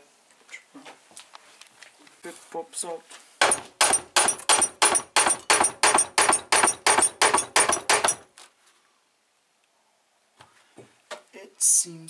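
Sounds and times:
mallet knocking on metal: 3.4 - 8.2.

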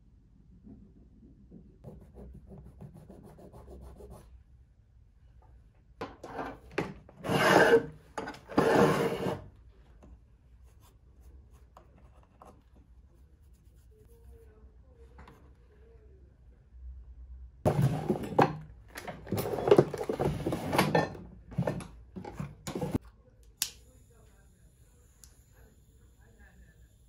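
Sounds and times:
rasp scraping wax: 7.2 - 9.4.

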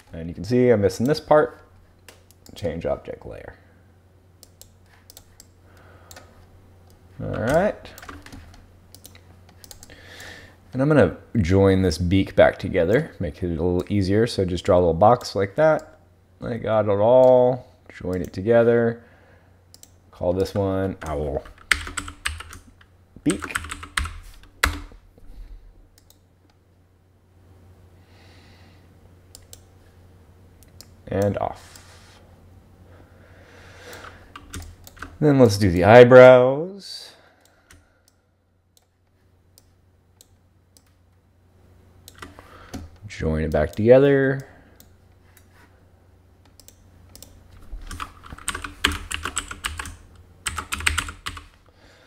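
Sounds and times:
low steady hum: 0.0 - 52.0
computer mouse clicks: 4.4 - 6.3, 6.9 - 10.0, 19.7 - 20.6, 26.0 - 26.2, 29.3 - 29.7, 46.5 - 51.4
rapid keyboard typing: 7.4 - 10.0, 20.4 - 25.0, 34.3 - 35.2, 47.8 - 51.6
soft breath: 28.0 - 28.9.

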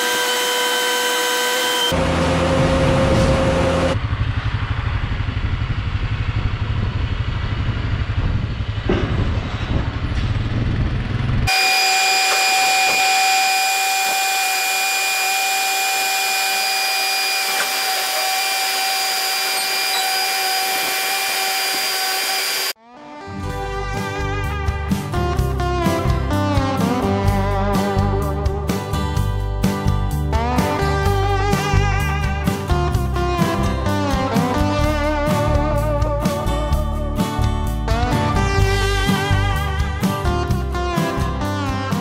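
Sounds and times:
high machine whine: 0.0 - 8.9, 11.0 - 22.8
diesel engine rumbling: 2.0 - 11.5.

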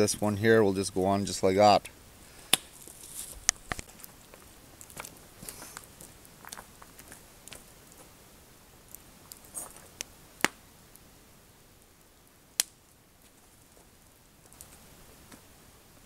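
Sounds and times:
campfire coals crackling: 0.0 - 16.0
sharp fire pops: 2.4 - 4.1, 8.9 - 10.6, 12.5 - 12.9.

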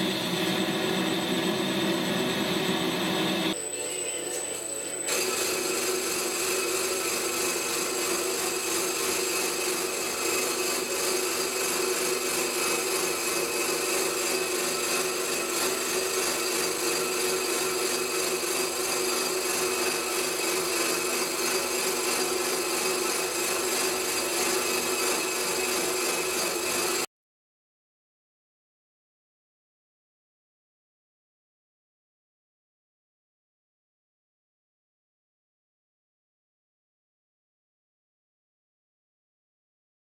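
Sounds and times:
lathe cutting noise: 0.0 - 27.1
lathe machine whine: 0.0 - 27.1.

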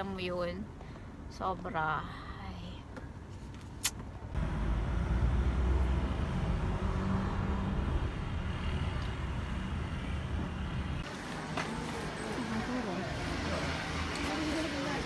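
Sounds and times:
car road and engine rumble: 2.8 - 15.0.

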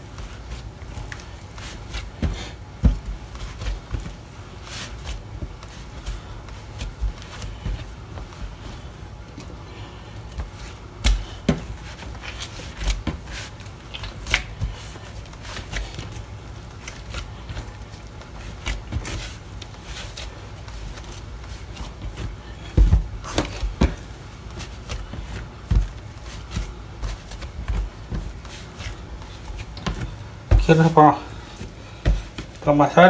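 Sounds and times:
dough rustling: 0.0 - 33.0
hands slapping bread dough: 0.0 - 33.0
heavy thumps: 1.8 - 4.3, 21.8 - 32.7.

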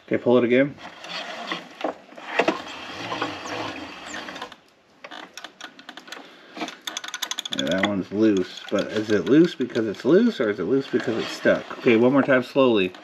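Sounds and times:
rasping mechanical clicks: 0.8 - 10.2, 12.7 - 13.0
starter cord pulled slowly: 0.8 - 10.2.

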